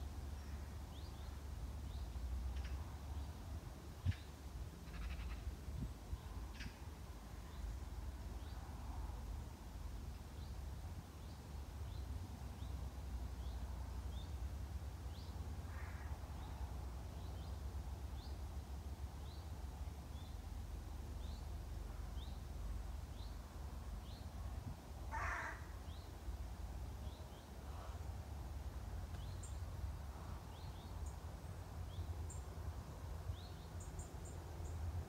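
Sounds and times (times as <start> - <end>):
songbird chirping: 0.0 - 24.5, 25.4 - 35.0
crow cawing: 4.9 - 5.4, 15.7 - 16.1, 25.1 - 25.7.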